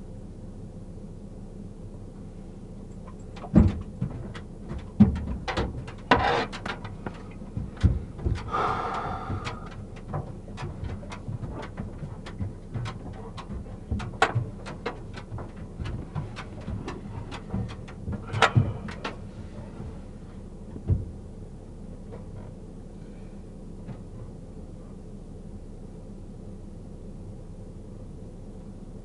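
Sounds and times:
steady low hum: 0.0s - 29.0s
knocks and clicks: 9.3s - 19.2s.

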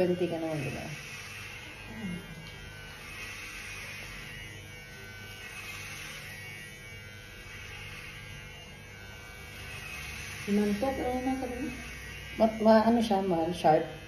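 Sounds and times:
electric hair clippers buzzing: 0.0s - 14.0s.

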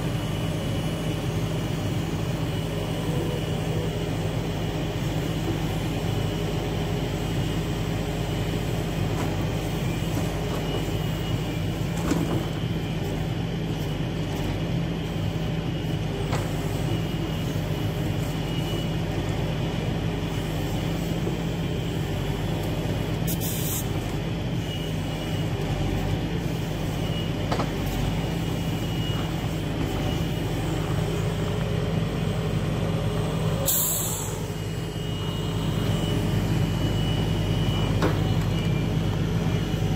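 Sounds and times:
diesel engine running: 0.0s - 39.9s
short hydraulic hisses: 33.7s - 34.4s.

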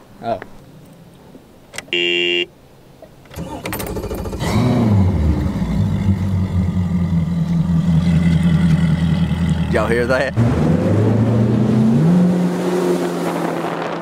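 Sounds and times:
warning horn beep: 1.9s - 2.5s
outboard engine starting and idling: 3.3s - 10.2s.

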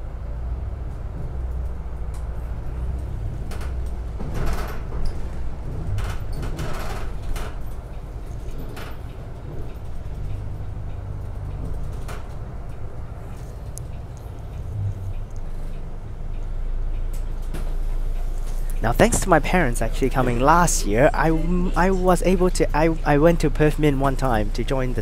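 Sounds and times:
rattles and knocks in bus: 0.0s - 21.2s, 21.8s - 25.0s
bus engine and road rumble: 0.0s - 25.0s.

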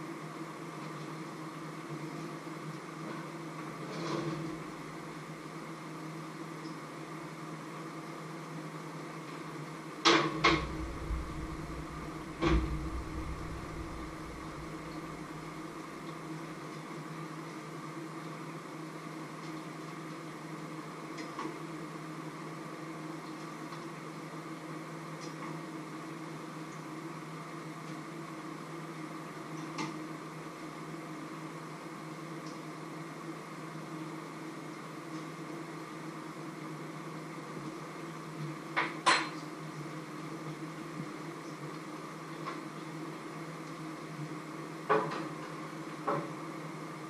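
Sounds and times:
steady machine hum: 10.4s - 16.4s.

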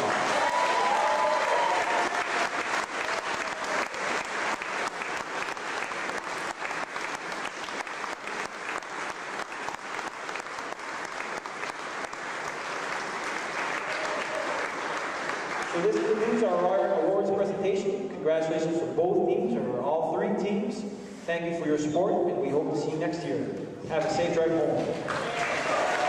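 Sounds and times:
crowd applauding: 0.0s - 16.8s, 24.8s - 26.0s.

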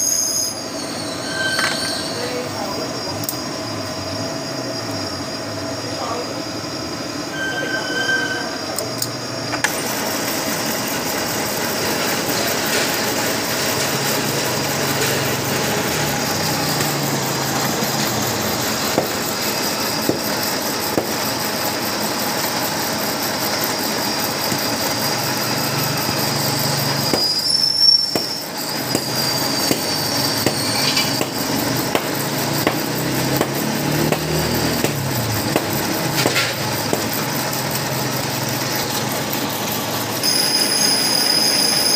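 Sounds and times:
thin high squeal: 0.0s - 3.5s, 7.2s - 8.8s, 23.7s - 31.3s, 40.2s - 41.9s
metal lathe running: 0.0s - 41.9s.

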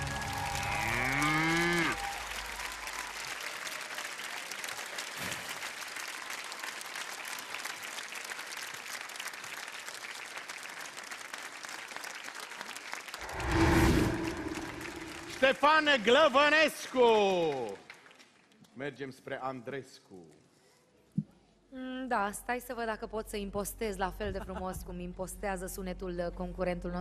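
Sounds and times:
audience applauding: 0.0s - 18.5s.

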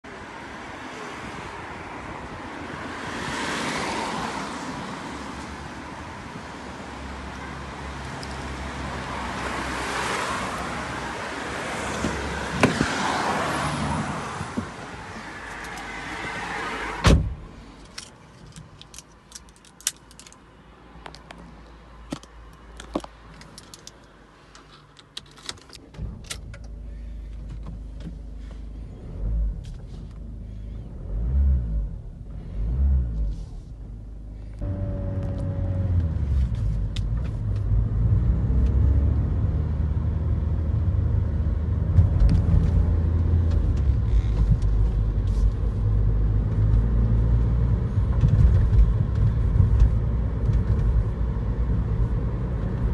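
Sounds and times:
wind: 0.0s - 52.9s
car door shutting: 16.9s - 17.4s.

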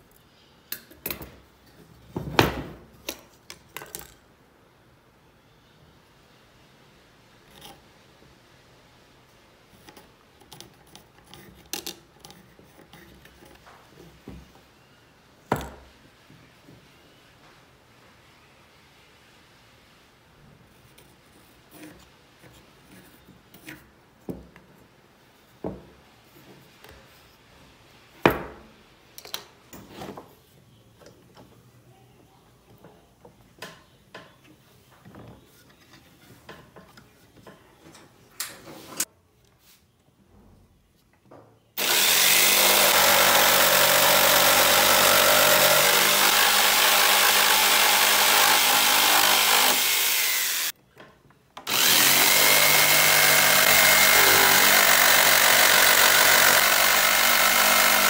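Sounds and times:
jigsaw sawing through wood: 41.8s - 50.7s, 51.7s - 58.0s.

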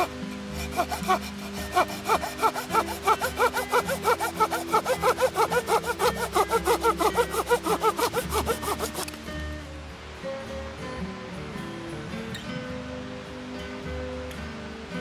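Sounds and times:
hand saw cutting wood: 0.0s - 9.3s.

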